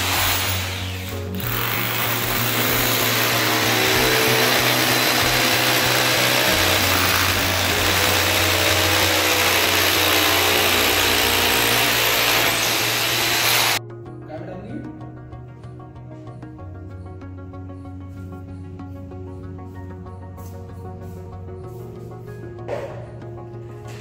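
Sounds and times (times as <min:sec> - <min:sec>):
electric drill boring into wall: 0:00.0 - 0:13.8.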